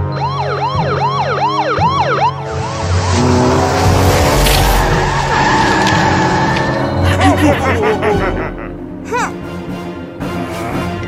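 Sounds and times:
police siren yelping: 0:00.0 - 0:03.1
music: 0:00.0 - 0:11.0
vehicle rushing whoosh: 0:02.4 - 0:07.0.

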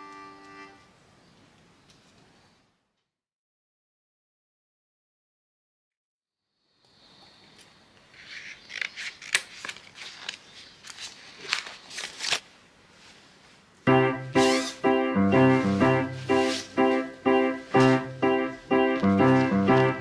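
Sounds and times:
piano music: 0:13.9 - 0:20.0
fabric rustling: 0:15.4 - 0:20.0.

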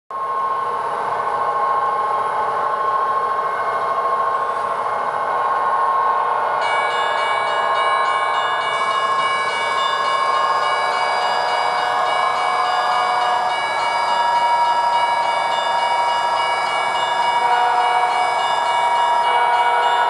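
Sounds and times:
model train sound through small speaker: 0:00.2 - 0:20.0
high ringing tones: 0:06.6 - 0:20.0.

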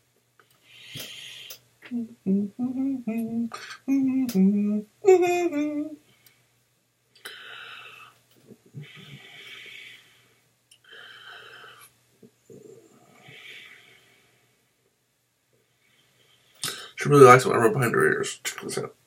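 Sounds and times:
man humming: 0:00.9 - 0:06.0.

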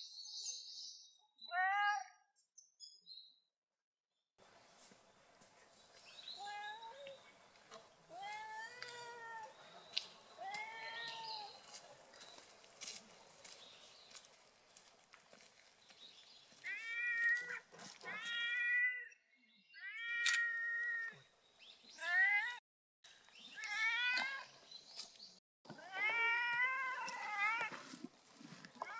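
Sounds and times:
cat meowing: 0:16.6 - 0:19.1, 0:25.8 - 0:27.7.

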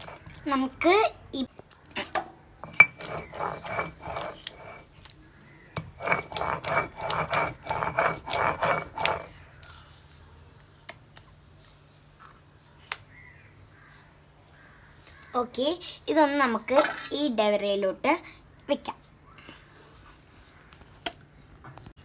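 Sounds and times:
stone roller scraping on stone slab: 0:00.0 - 0:00.9, 0:02.6 - 0:05.0, 0:05.8 - 0:09.4.

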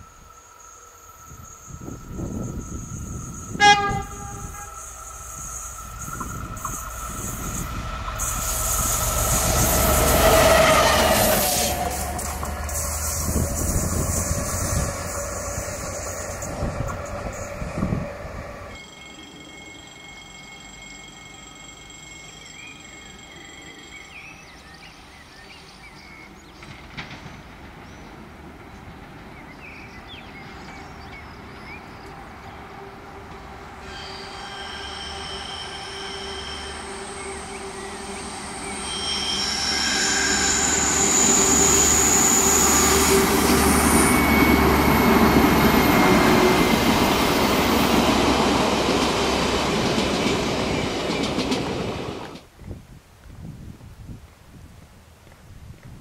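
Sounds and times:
passenger train passing: 0:00.0 - 0:52.6
high-pitched wheel squeal: 0:00.2 - 0:24.1, 0:33.8 - 0:48.1.

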